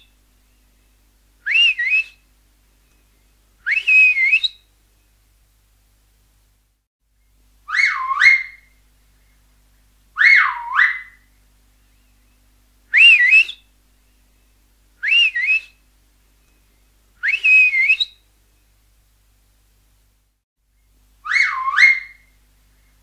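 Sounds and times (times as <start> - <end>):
finger whistle: 1.5 - 2.2, 3.7 - 4.6, 13.0 - 13.6, 15.0 - 15.8, 17.2 - 18.2.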